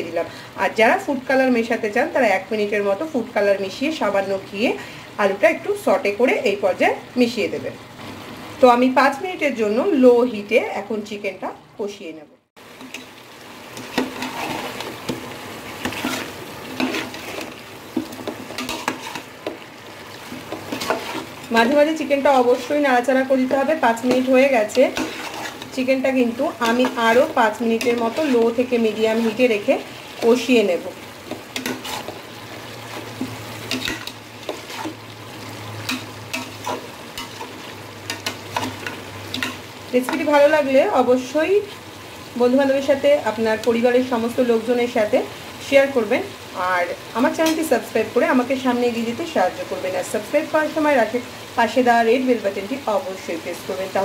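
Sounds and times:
food sizzling: 0.0s - 54.0s
metal spatula scraping pot: 12.8s - 19.6s, 20.2s - 21.9s, 22.6s - 30.5s, 31.2s - 35.0s, 35.8s - 40.4s.

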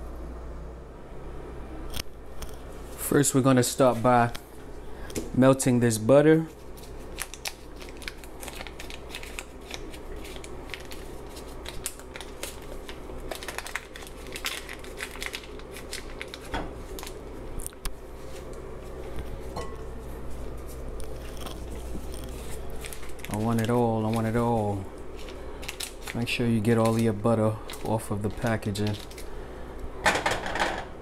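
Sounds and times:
steady low hum: 0.0s - 31.0s
paper wrapper crinkling: 6.5s - 18.5s, 20.4s - 29.5s.

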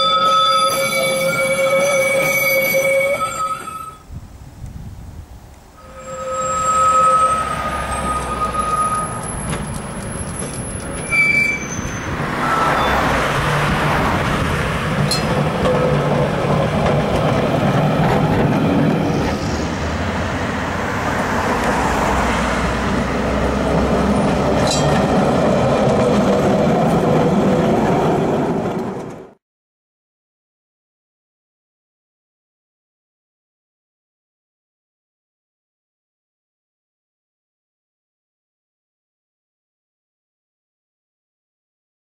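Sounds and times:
tram wheels squealing: 0.0s - 4.0s, 5.8s - 29.4s
road traffic noise: 4.1s - 29.4s.

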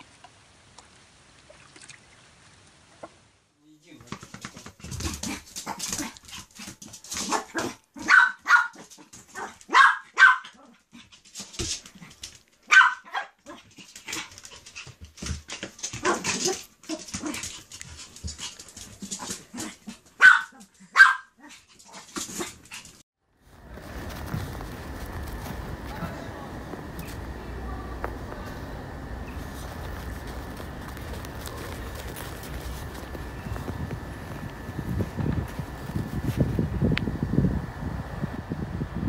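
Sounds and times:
puppy barking in sharp yips: 7.3s - 10.6s, 12.7s - 13.4s, 20.2s - 21.4s
scuffling and tapping: 23.6s - 36.6s.

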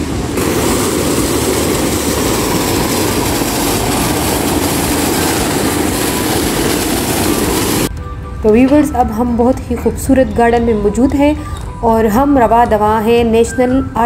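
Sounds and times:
fountain water splashing: 0.0s - 7.9s.

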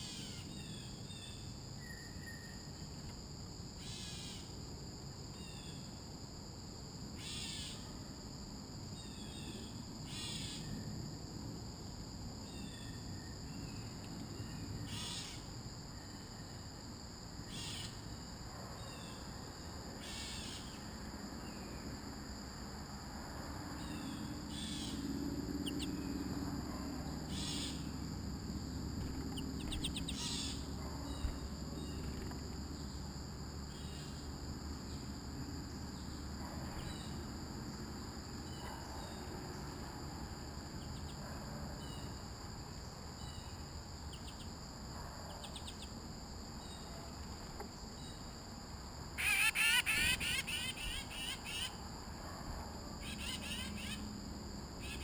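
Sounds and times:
songbirds chirping: 23.8s - 35.2s
rapid bird twittering: 29.1s - 30.6s
high-pitched insect drone: 49.2s - 51.8s, 53.0s - 55.0s.

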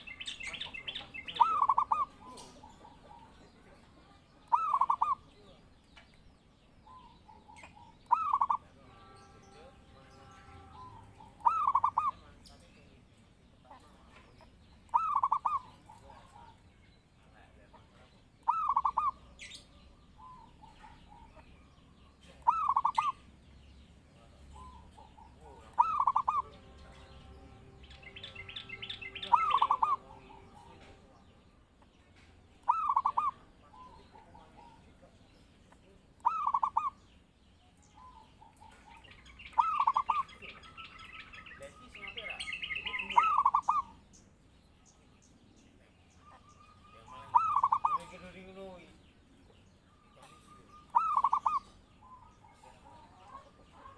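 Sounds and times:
higher bird chirping: 0.0s - 53.9s
dove stuttering coo: 1.3s - 3.4s, 4.5s - 5.3s, 10.6s - 12.2s, 14.9s - 16.5s, 18.5s - 19.2s, 22.4s - 23.2s, 24.6s - 26.5s, 29.1s - 30.6s, 32.7s - 34.8s, 36.2s - 37.0s, 39.6s - 40.3s, 43.1s - 44.0s, 47.1s - 48.1s, 50.2s - 51.8s.

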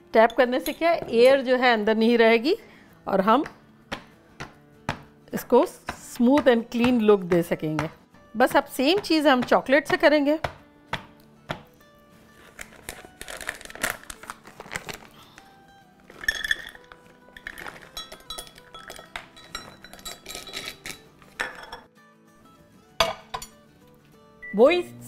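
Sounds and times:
background music: 0.0s - 25.0s
kitchenware clinking: 0.2s - 1.4s, 16.1s - 21.9s, 23.0s - 23.6s
wafers clattering into metal cup: 16.1s - 21.8s.

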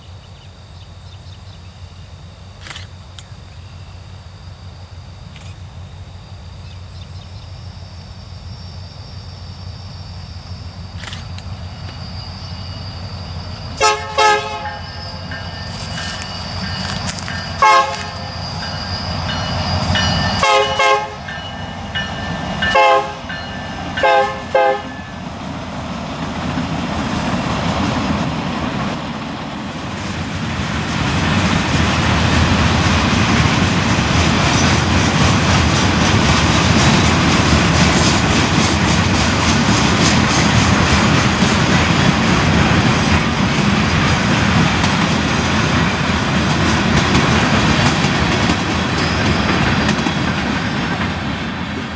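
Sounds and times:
train rumble: 0.0s - 51.9s
train wheels clattering on rails: 10.8s - 51.9s
locomotive air horn blasts: 13.8s - 15.3s, 17.6s - 18.3s, 20.3s - 21.3s, 22.6s - 23.3s, 24.0s - 25.0s.

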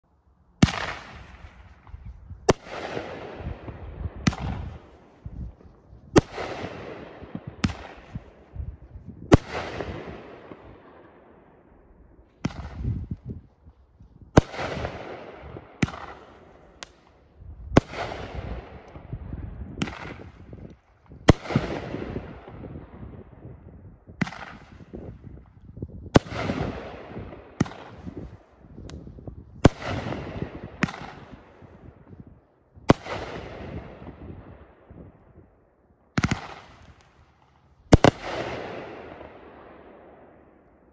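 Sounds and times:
firework cake aerial shots banging: 0.6s - 5.5s.

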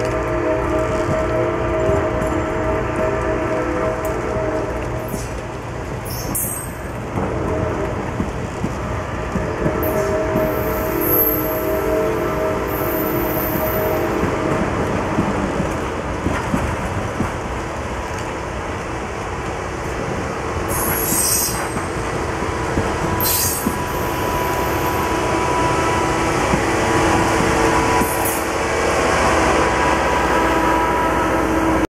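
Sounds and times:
train wheels rumbling on rails: 0.0s - 31.9s
sharp high wheel squeals: 6.1s - 6.8s, 23.2s - 25.0s.

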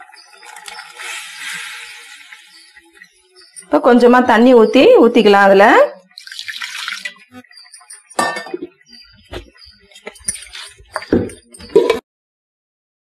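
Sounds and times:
water poured hissing into pot: 0.0s - 2.6s, 6.2s - 7.1s.

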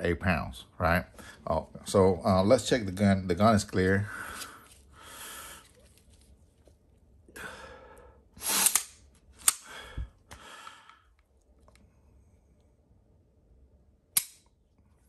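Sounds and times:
pistol slide sliding rasps: 8.5s - 9.6s
sharp metallic click: 8.6s - 9.6s, 14.1s - 14.6s.

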